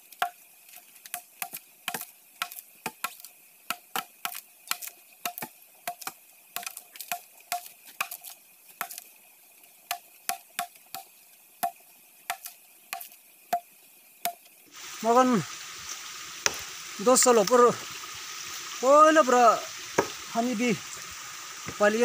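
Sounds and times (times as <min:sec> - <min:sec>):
machete chopping wood: 0:01.1 - 0:09.0, 0:16.4 - 0:16.7, 0:20.0 - 0:20.3.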